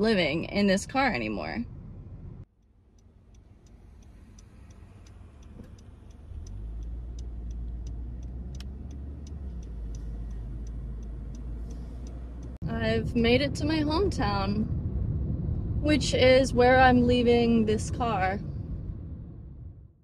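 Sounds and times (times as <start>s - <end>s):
engine and road rumble: 0.0s - 20.0s
turn signal clicking: 2.4s - 12.6s.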